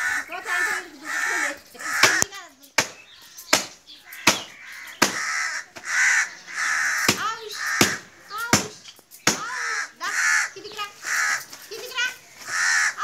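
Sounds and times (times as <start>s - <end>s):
crow cawing: 0.0s - 2.3s, 4.0s - 8.3s, 9.4s - 11.8s, 12.4s - 13.0s.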